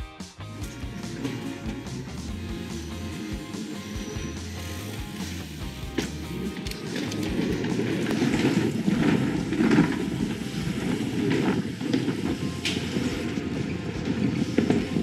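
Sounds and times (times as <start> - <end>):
bike tyres rumbling on track: 0.4 - 15.0
bike rattling: 0.5 - 15.0.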